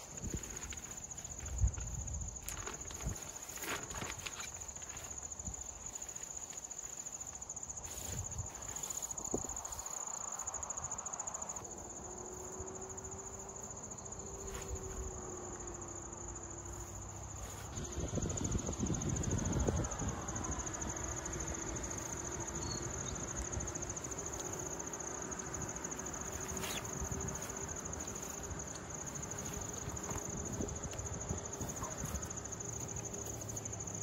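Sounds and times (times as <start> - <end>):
gear clicking and rustling: 0.0 - 7.0
insects chirring: 0.0 - 34.0.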